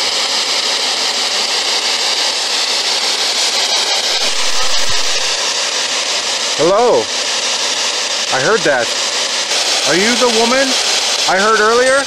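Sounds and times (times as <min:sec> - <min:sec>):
radio static hiss: 0:04.1 - 0:05.5.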